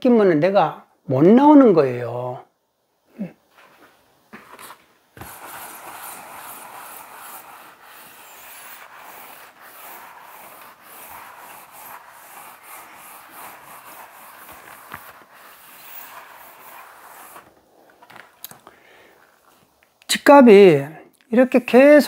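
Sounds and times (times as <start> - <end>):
eraser rubbing on chalkboard: 4.5 - 17.5.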